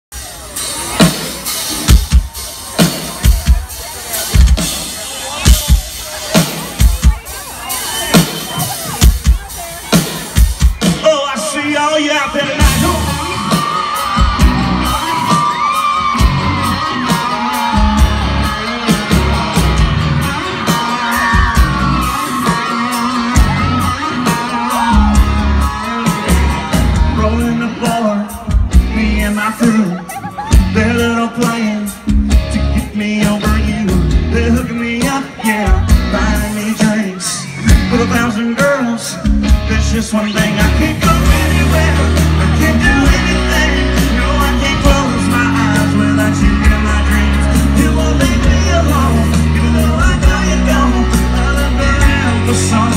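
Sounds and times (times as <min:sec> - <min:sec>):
live band playing through a pa: 0:00.1 - 0:52.9
audience yelling and whooping: 0:00.2 - 0:52.9
person singing: 0:10.8 - 0:52.9.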